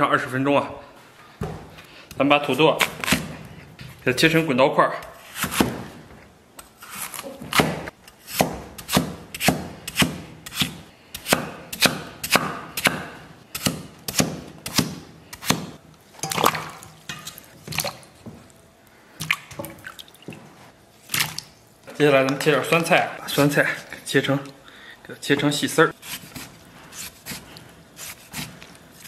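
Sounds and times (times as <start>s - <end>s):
cleaver chopping on wooden board: 7.5s - 15.8s
pieces splashing into water: 16.2s - 18.2s.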